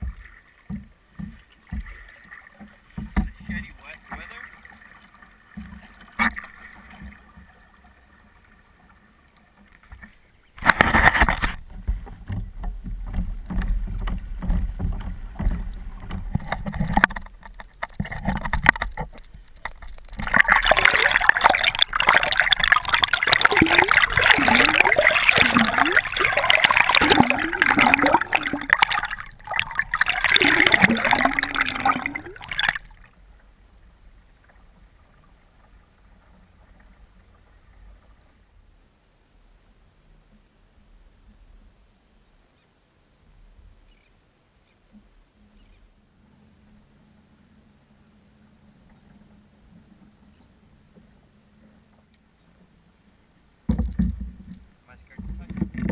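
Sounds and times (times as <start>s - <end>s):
water rushing and splashing: 0.0s - 38.4s.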